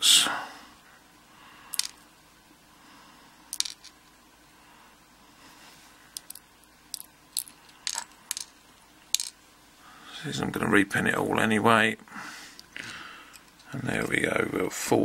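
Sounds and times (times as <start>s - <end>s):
metal pins clicking on plastic tray: 6.2s - 8.5s, 9.1s - 9.3s.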